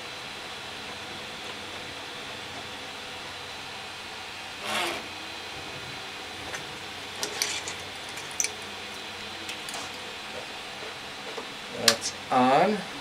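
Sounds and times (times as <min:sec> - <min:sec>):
belt rubbing scrape: 0:07.2 - 0:08.3.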